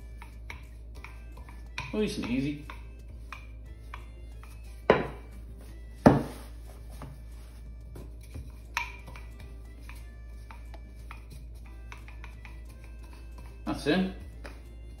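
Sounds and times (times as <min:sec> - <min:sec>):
rolling pin knocking on countertop: 0:04.9 - 0:05.3, 0:06.0 - 0:07.1.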